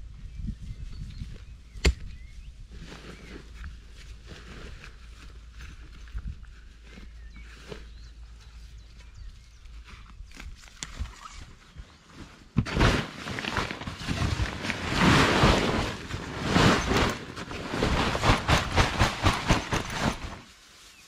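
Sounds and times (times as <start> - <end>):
soil and stones pouring: 12.6 - 20.4.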